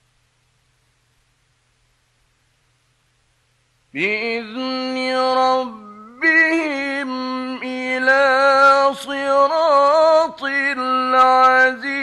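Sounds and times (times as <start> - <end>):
man chanting melodically: 4.0 - 12.0.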